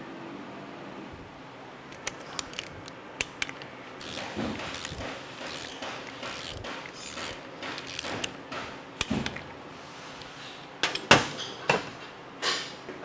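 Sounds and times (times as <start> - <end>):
ratchet wrench strokes: 4.0 - 8.4.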